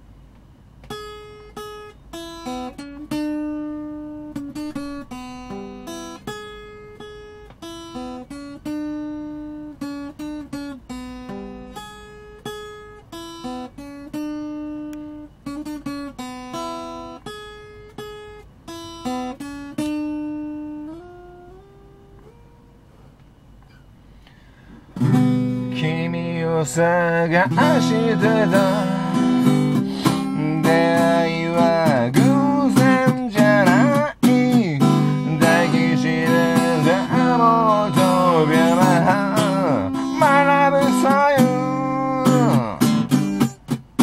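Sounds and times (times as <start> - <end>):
solo acoustic guitar melody: 0.0 - 44.0.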